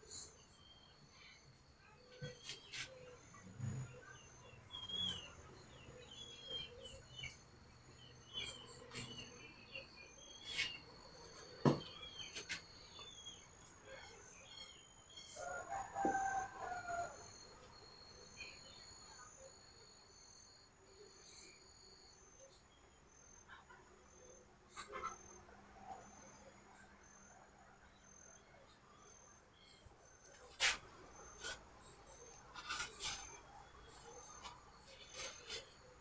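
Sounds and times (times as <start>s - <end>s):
small birds chirping: 0.1s - 15.4s
rooster crowing: 15.4s - 17.3s.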